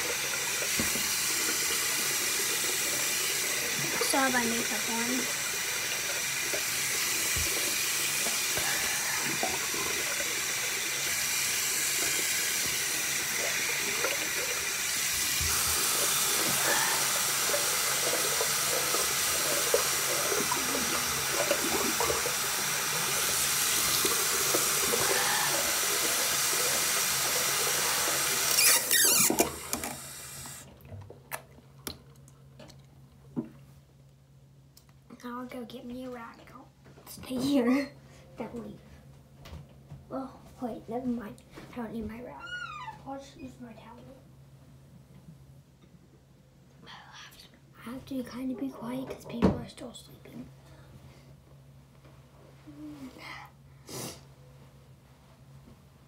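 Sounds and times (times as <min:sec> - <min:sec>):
tap running into sink: 0:00.5 - 0:02.8, 0:06.4 - 0:10.5, 0:11.9 - 0:30.6.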